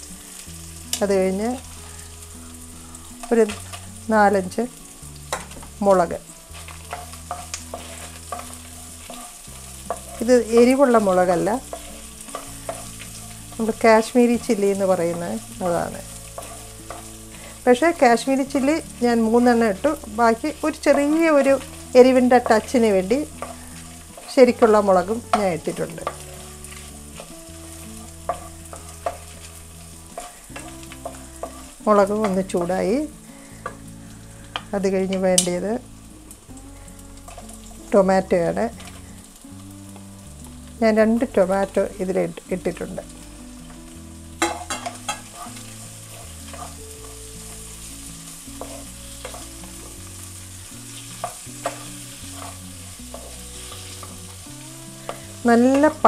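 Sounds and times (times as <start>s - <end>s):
food sizzling in oil: 0.0s - 56.0s
spatula scraping and tapping pan: 3.1s - 3.8s, 5.2s - 33.8s, 34.4s - 35.5s, 37.2s - 37.8s, 38.5s - 40.1s, 44.4s - 56.0s.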